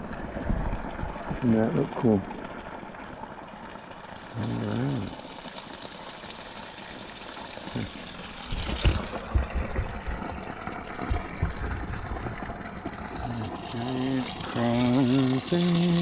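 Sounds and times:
running water: 0.0 - 16.0
water pouring into a pool: 0.0 - 16.0
low rumbling thumps: 8.5 - 12.6.

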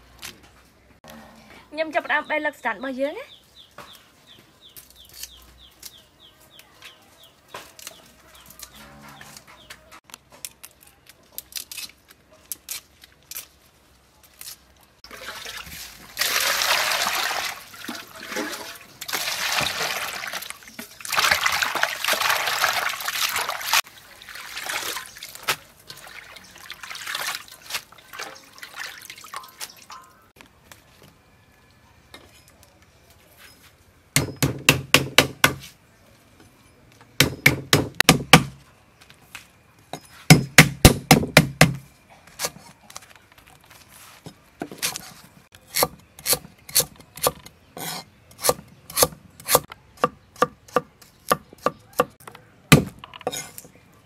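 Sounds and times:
stems snapping and rustling: 4.7 - 6.0, 7.5 - 14.8
hands sloshing greens in water: 15.1 - 30.0.

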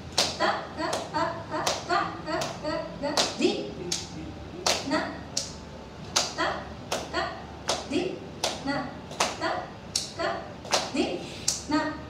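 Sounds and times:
person reciting rhythm syllables: 0.0 - 12.0
hand claps: 0.1 - 11.7.

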